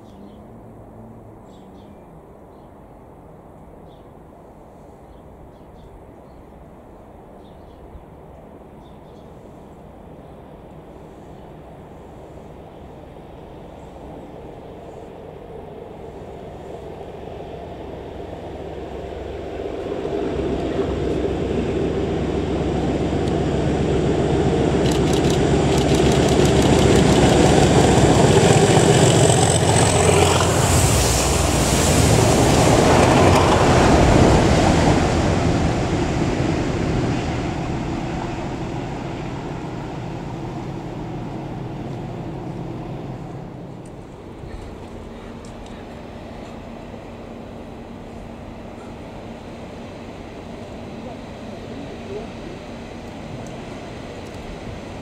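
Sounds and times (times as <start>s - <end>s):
diesel locomotive engine: 0.0s - 55.0s
water jets hissing: 25.4s - 36.4s.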